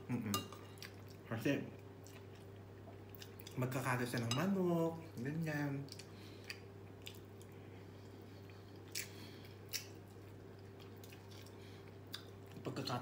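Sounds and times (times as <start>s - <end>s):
steady low hum: 0.0s - 13.0s
person chewing food: 0.4s - 3.6s, 5.9s - 12.6s.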